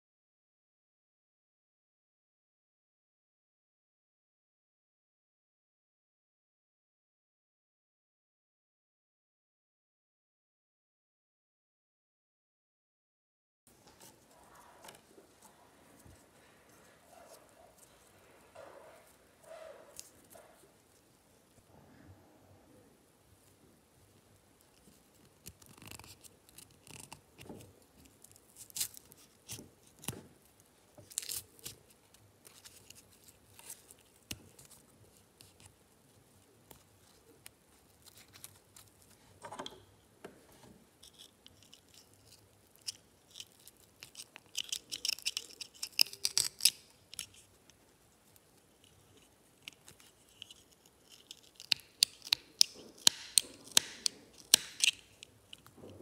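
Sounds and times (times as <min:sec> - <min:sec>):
small scissors snipping thread: 0:49.6 - 0:55.7.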